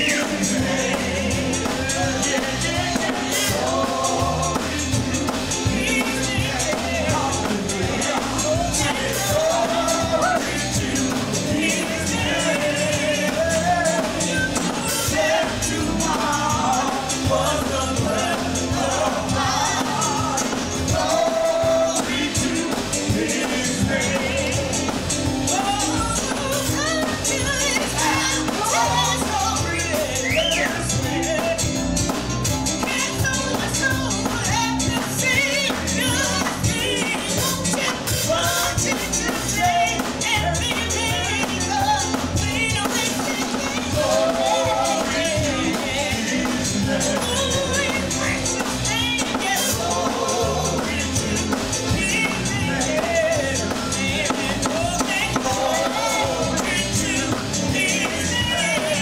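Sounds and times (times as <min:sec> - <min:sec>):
band with steady beat: 0:00.0 - 0:59.0
voices singing: 0:00.0 - 0:59.0.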